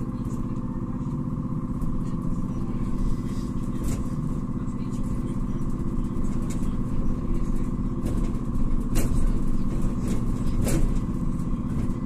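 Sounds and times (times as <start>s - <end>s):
road rumble: 0.0s - 12.0s
sharp knocks from bus body: 8.0s - 11.1s.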